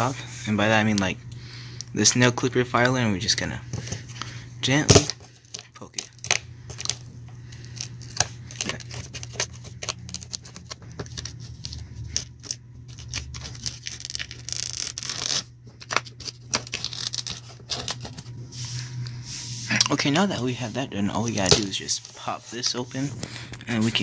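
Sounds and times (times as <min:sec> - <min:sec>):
packing tape tearing: 0:04.9 - 0:18.3.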